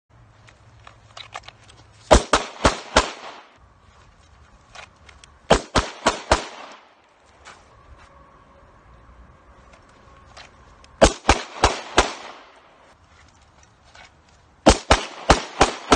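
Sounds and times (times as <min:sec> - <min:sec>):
pistol shots with echo: 0:02.1 - 0:03.5, 0:05.5 - 0:06.9, 0:11.0 - 0:12.6, 0:14.6 - 0:15.9.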